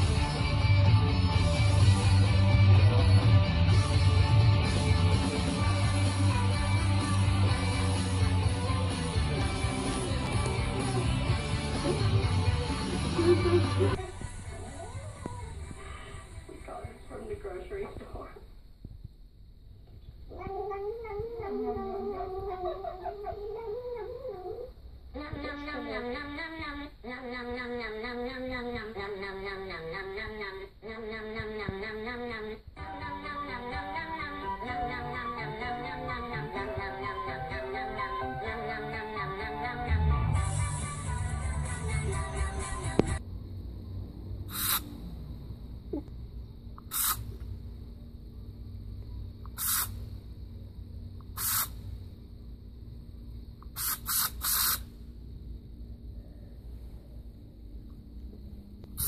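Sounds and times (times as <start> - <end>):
music with sung melody: 0.0 - 14.0, 32.8 - 43.2
kitten mewling: 20.3 - 29.3
short sharp hisses: 44.5 - 45.0, 46.8 - 47.3, 49.5 - 50.1, 51.3 - 51.8, 53.6 - 54.9.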